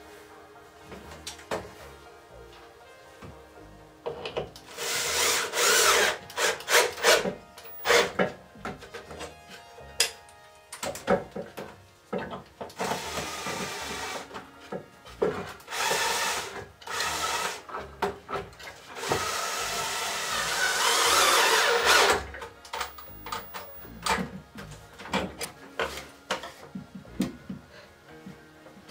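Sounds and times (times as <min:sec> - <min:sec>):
cordless drill drilling wood: 0:04.7 - 0:08.2, 0:12.8 - 0:14.2, 0:15.7 - 0:17.6, 0:19.0 - 0:24.1.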